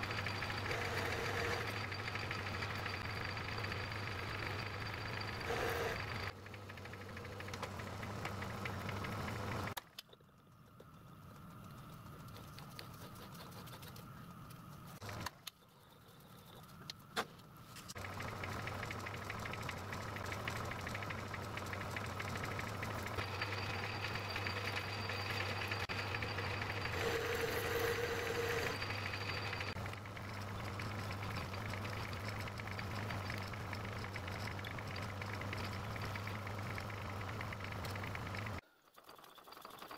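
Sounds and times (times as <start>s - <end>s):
lathe motor hum and gear whine: 0.0s - 9.8s, 17.9s - 38.6s.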